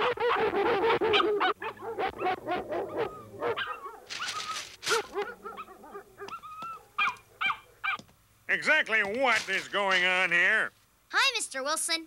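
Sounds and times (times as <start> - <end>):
cartoon dogs barking and yipping: 0.0 - 8.1.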